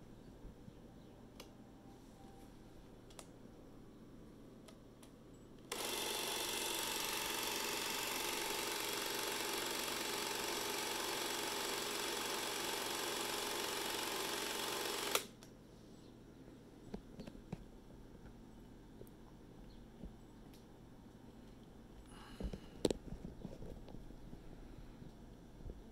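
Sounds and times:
film camera whirring: 5.6s - 15.4s.

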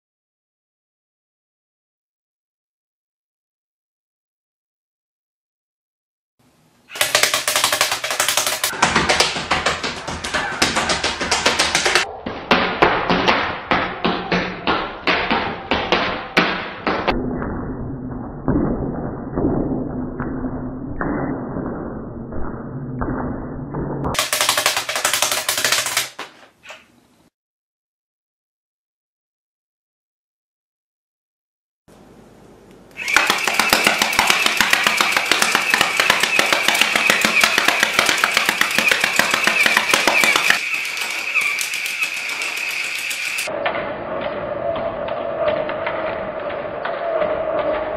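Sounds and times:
rubber band gun snapping: 32.9s - 41.8s
toy blaster clicks: 32.9s - 43.5s
high whine: 40.6s - 47.9s.

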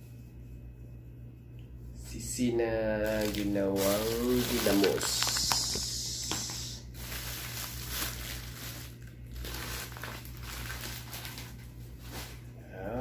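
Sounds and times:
low steady hum: 0.0s - 13.0s
plastic bag crinkling: 3.0s - 12.5s.

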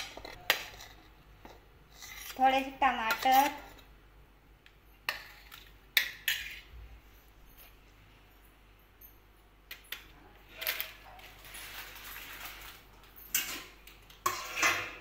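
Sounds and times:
kitchen utensils clinking: 2.3s - 3.8s, 9.7s - 15.0s.

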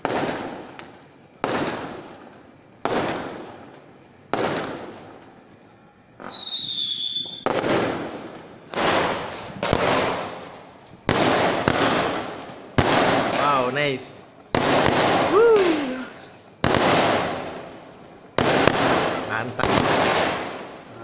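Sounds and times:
fireworks bangs echoing: 0.0s - 21.0s
whistling rocket: 6.2s - 8.1s, 11.1s - 17.7s.

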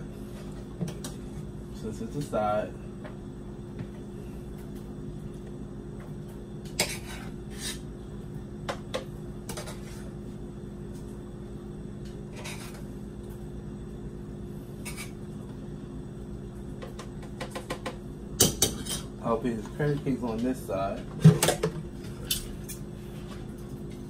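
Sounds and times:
steady low hum: 0.0s - 24.0s
metal spoon scraping a pot: 6.8s - 7.8s.

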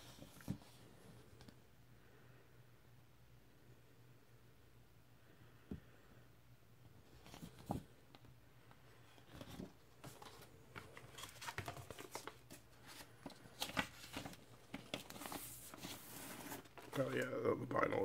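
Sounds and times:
paper rustling: 9.2s - 17.3s.

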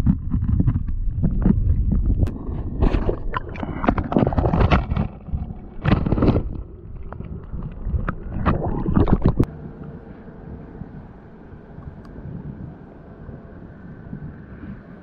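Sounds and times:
muffled underwater noise: 0.0s - 15.0s
water rushing: 2.3s - 9.5s.

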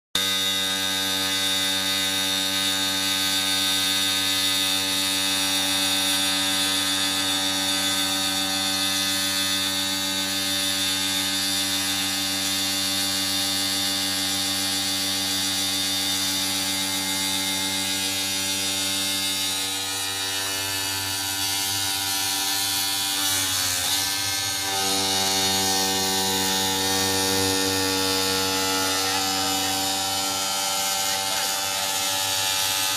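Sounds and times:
grinding wheel cutting: 0.2s - 32.9s
router spindle whining: 0.2s - 32.9s.

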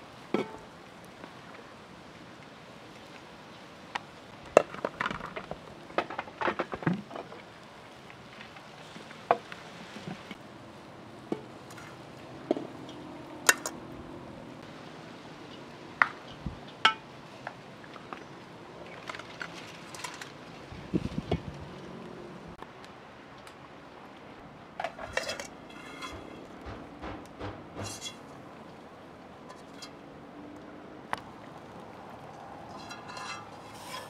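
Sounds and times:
metal spoon clinking in pot: 32.8s - 34.0s.

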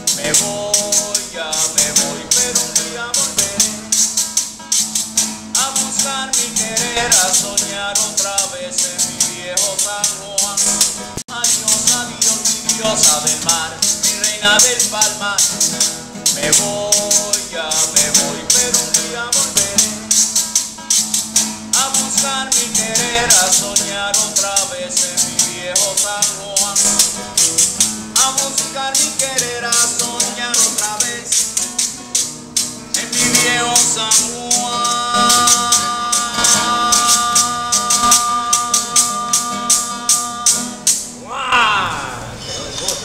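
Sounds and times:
man singing: 0.0s - 4.4s, 5.2s - 42.3s
classical guitar strumming: 0.0s - 43.0s.

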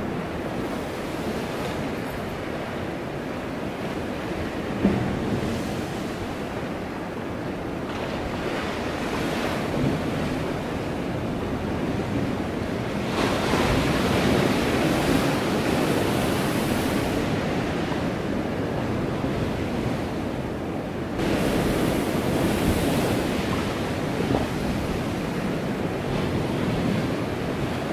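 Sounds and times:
wind blowing on microphone: 21.2s - 27.9s.

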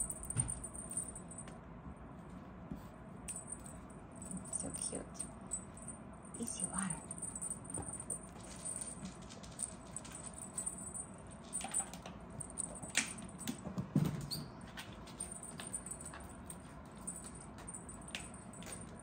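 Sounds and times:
kitten paws scratching and scrabbling: 6.7s - 19.0s.

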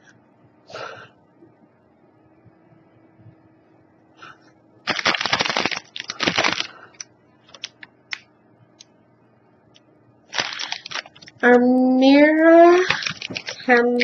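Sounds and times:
plastic wrappers crinkling: 4.9s - 7.9s, 10.3s - 11.6s, 12.5s - 14.0s.

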